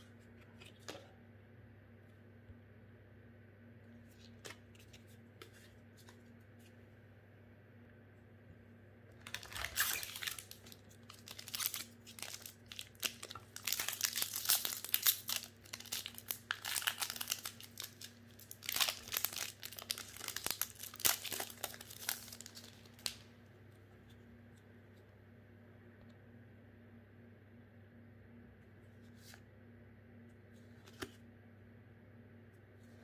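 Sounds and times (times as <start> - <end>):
plastic wrapper tearing and crinkling: 9.2 - 23.2.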